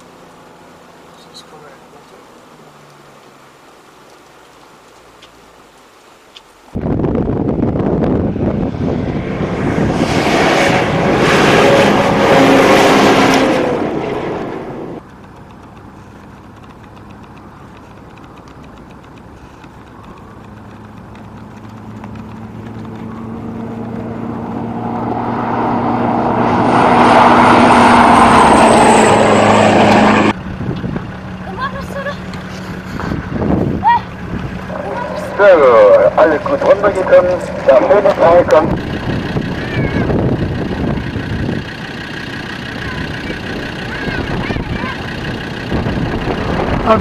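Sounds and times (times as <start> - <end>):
wind rushing on microphone: 6.7 - 15.0, 21.7 - 31.2, 32.9 - 41.7, 43.4 - 47.0
pickup truck engine drone: 6.8 - 47.0
tyres on gravel: 12.4 - 47.0.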